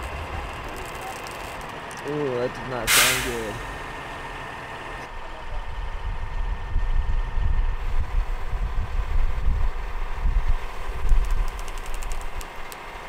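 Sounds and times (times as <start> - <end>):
truck engine running: 0.0 - 13.0.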